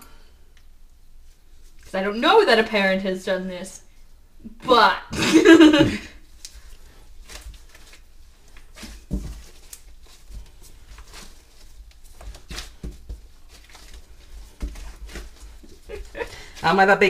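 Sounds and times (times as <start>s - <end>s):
dough squishing and patting: 5.6s - 17.0s
dull thumps of dough pressed: 8.7s - 15.7s.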